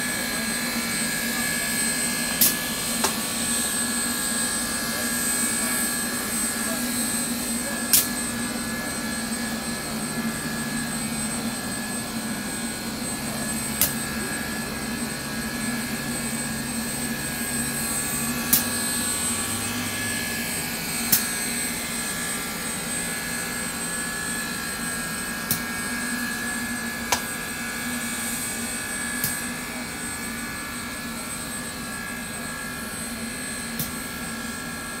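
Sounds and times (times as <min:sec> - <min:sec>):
steam locomotive hissing: 0:00.0 - 0:24.2
sharp click: 0:07.9 - 0:08.1.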